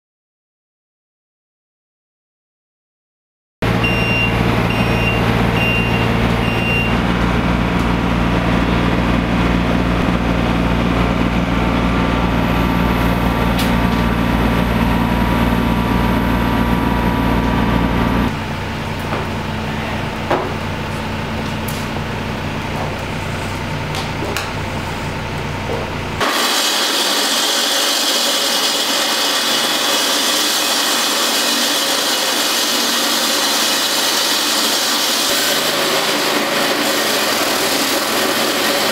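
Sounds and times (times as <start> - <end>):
excavator diesel engine running: 3.6 - 38.9
quiet engine hum: 8.9 - 26.2
concrete saw cutting concrete: 26.2 - 38.9.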